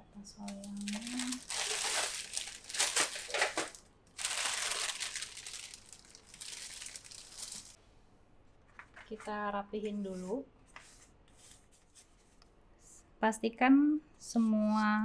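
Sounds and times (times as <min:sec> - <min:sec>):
baking paper crinkling: 0:00.4 - 0:07.8.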